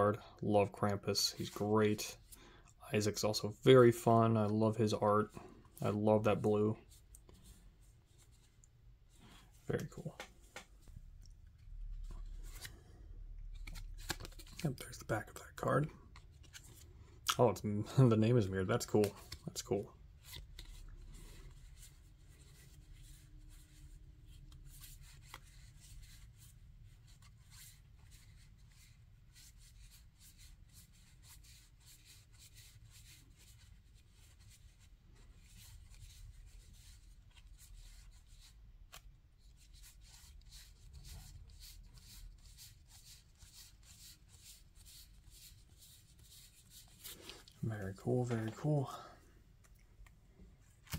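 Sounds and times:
cards rustling as leafed through: 6.8s - 17.2s, 18.0s - 48.9s, 49.5s - 50.9s.

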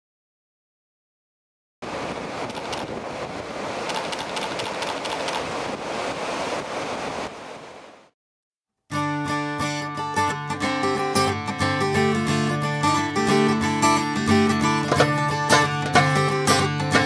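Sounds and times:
ocean waves breaking: 1.8s - 8.2s.

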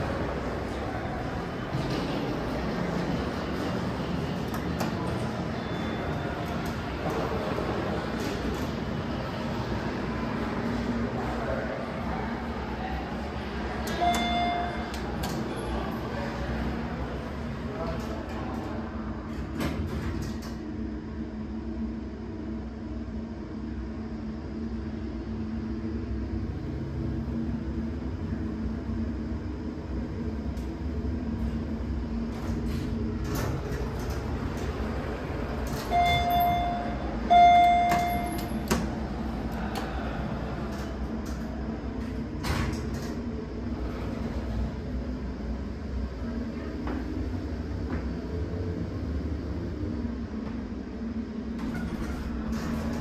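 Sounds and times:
elevator machinery hum and rumble: 0.0s - 53.0s.

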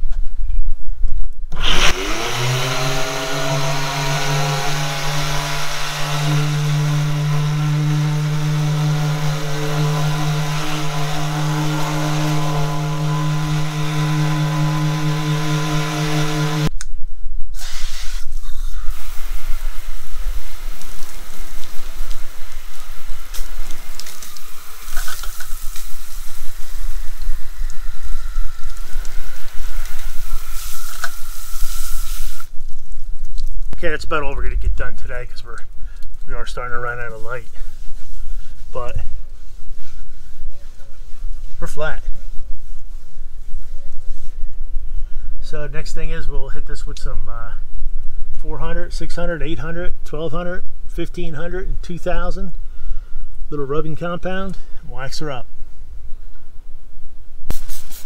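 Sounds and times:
water spraying from hose nozzle: 1.5s - 16.7s, 17.5s - 33.0s, 57.5s - 58.0s
electric palm sander running: 1.6s - 16.7s, 18.9s - 32.4s.

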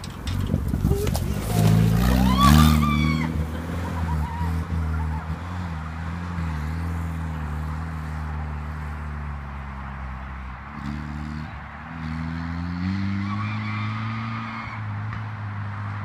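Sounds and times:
petrol engine running: 0.0s - 11.2s.

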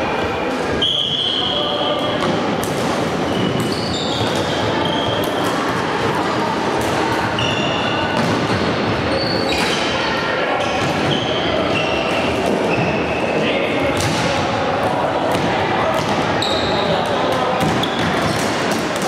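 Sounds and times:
shoe squeaks: 3.2s - 5.4s, 7.4s - 8.2s, 9.1s - 9.9s, 10.5s - 13.4s, 16.4s - 16.9s.

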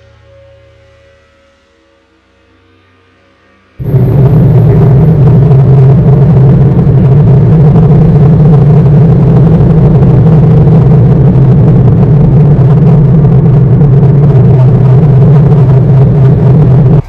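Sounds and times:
electric train rumbling: 3.8s - 17.0s.

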